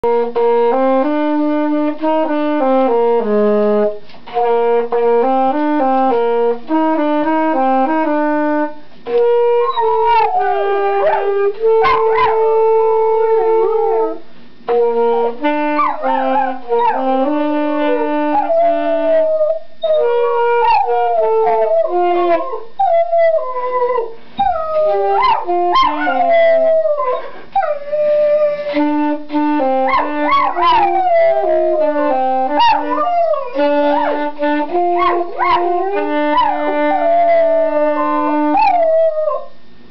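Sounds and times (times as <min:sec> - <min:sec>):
saxophone melody: 0:00.0 - 0:39.9
dog howling and yipping: 0:09.6 - 0:14.2, 0:15.8 - 0:17.1, 0:17.8 - 0:28.6, 0:29.9 - 0:34.4, 0:35.0 - 0:39.5.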